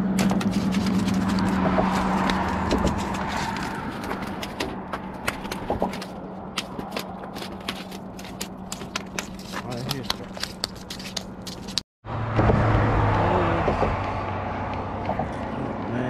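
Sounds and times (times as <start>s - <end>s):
shark slapping on concrete: 0.2s - 11.8s.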